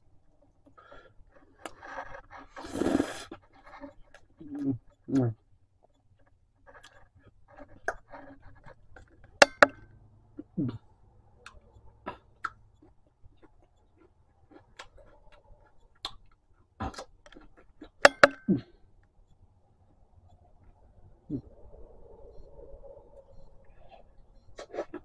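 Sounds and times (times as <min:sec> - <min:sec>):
person chewing and crunching: 0:11.4 - 0:18.8.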